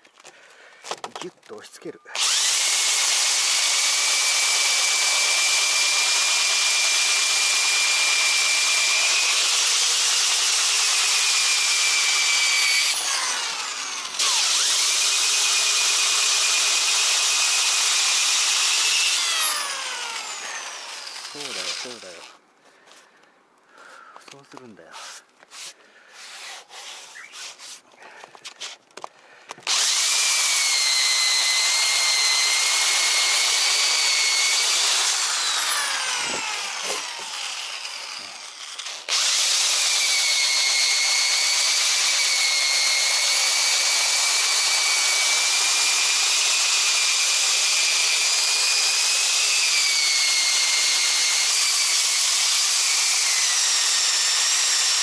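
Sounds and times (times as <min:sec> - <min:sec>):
electric drill whine: 0:02.1 - 0:22.4, 0:29.6 - 0:55.0
sanding pad rasping: 0:24.9 - 0:27.9, 0:29.7 - 0:39.4.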